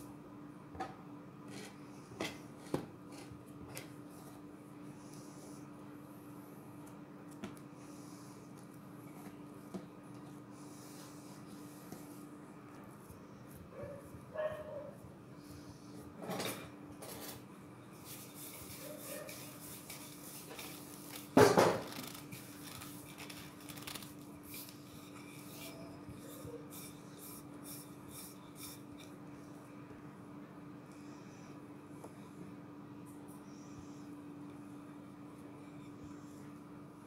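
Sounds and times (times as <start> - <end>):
hands kneading dough: 17.9 - 29.4.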